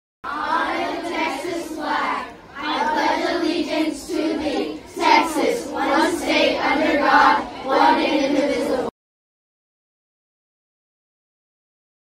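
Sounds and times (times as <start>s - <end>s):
children reciting in unison: 0.2s - 8.9s.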